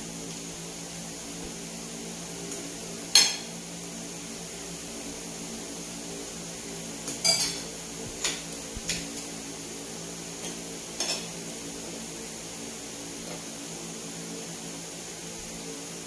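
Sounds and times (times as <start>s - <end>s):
cutlery clinking on plate: 3.2s - 3.5s, 7.1s - 9.0s.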